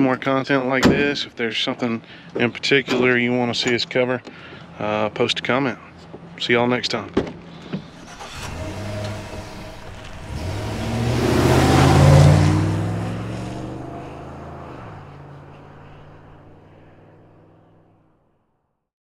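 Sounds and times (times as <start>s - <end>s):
rising whoosh: 8.1s - 16.7s
low rumbling swell: 8.1s - 17.5s.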